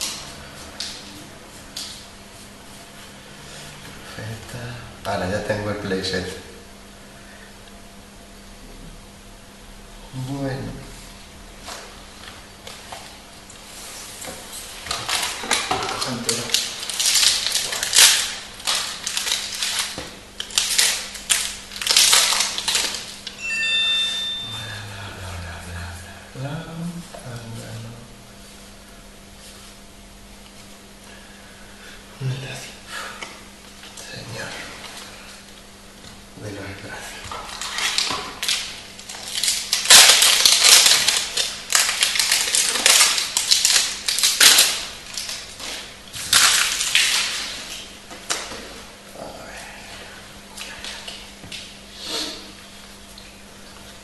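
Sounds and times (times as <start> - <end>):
foil wrapper crinkling and tearing: 14.8 - 23.4, 37.3 - 48.5.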